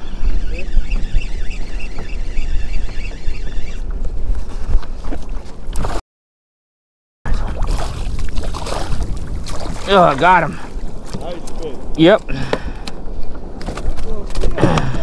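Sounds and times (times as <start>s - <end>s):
wind buffeting microphone: 0.0s - 5.7s, 7.3s - 15.0s
fish thrashing and splashing: 7.4s - 10.2s.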